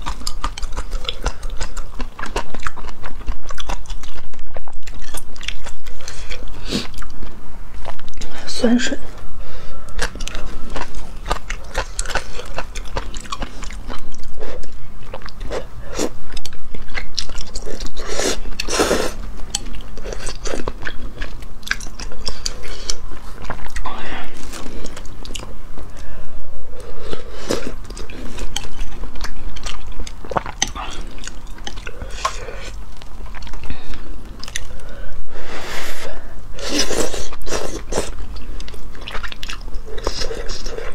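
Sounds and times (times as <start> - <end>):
wet chewing: 0.0 - 8.4, 9.1 - 35.2, 36.6 - 40.9
slurping noodles and broth: 17.9 - 19.2, 35.4 - 38.2.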